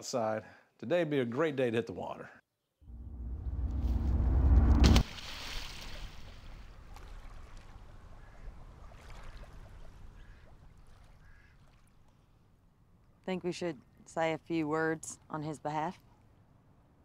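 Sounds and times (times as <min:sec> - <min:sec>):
low rising rumble with hum: 0:02.9 - 0:05.2
splash into water: 0:04.3 - 0:12.2.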